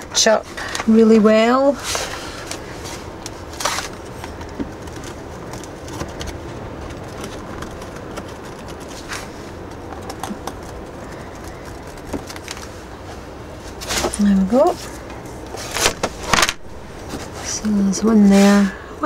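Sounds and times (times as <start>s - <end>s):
low background hum: 0.0s - 19.0s
cardboard rustling and scraping: 0.2s - 18.7s.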